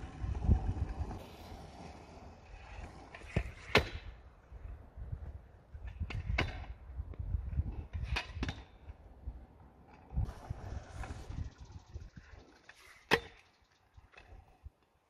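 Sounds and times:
low rumble: 10.2s - 12.6s.

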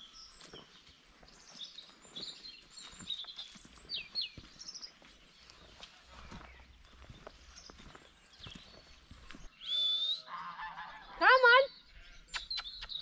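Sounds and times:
small birds chirping: 0.0s - 13.0s
falling whistled bird notes: 9.6s - 10.3s.

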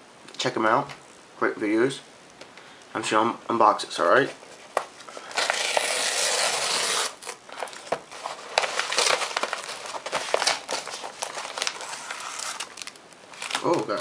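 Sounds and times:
envelope crackling and rustling: 4.2s - 14.0s
paper mailer tearing: 5.2s - 14.0s.

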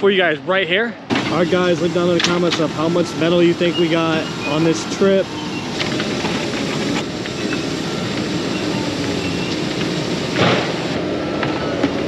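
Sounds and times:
diesel engine running: 1.0s - 12.0s.

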